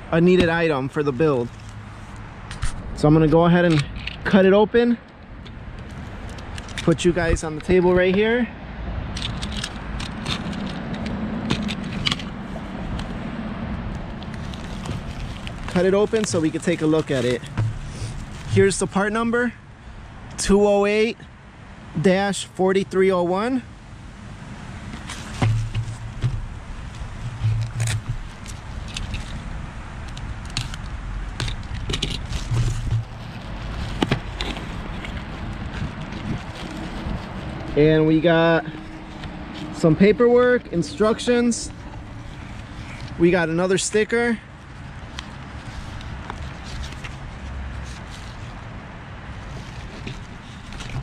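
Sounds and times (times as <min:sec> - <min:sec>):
cardboard box being handled: 0:14.3 - 0:19.0, 0:24.9 - 0:29.6, 0:30.2 - 0:37.9, 0:49.4 - 0:51.0.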